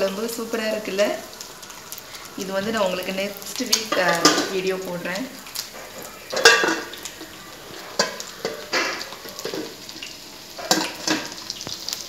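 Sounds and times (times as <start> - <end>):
fish sizzling in oil: 0.0 - 12.0
metal spatula clinking on pan: 6.3 - 7.0.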